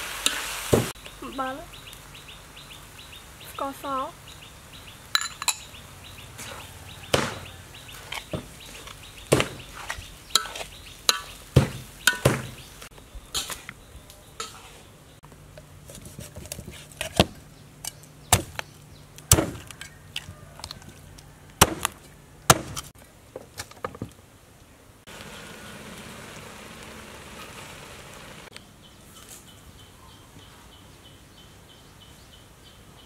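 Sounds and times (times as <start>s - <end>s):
knife chopping on wooden board: 7.1s - 7.4s, 9.3s - 10.6s.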